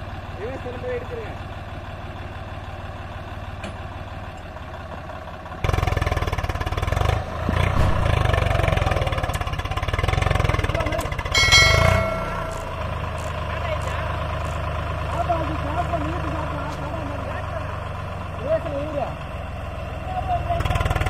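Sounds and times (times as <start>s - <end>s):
tractor engines idling and revving: 0.0s - 21.0s
loud metallic clang: 7.7s - 9.0s, 11.3s - 13.1s.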